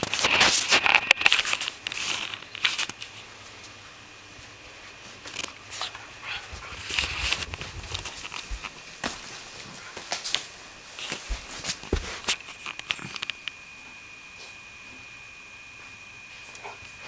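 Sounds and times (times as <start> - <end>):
dogs play-fighting noises: 4.4 - 13.4, 16.3 - 17.0
dogs scuffling: 5.0 - 13.3.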